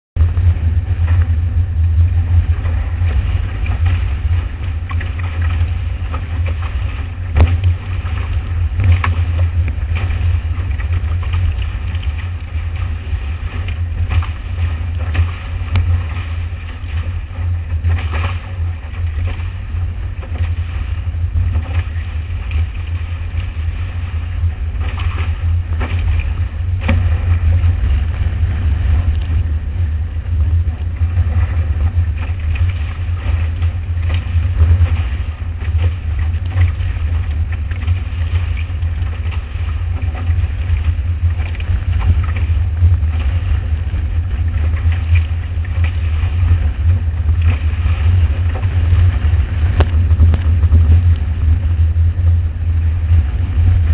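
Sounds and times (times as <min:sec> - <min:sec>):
hull rushing through water: 0:00.2 - 0:53.9
wind buffeting microphone: 0:00.2 - 0:53.9
sharp water slaps: 0:04.8 - 0:12.3.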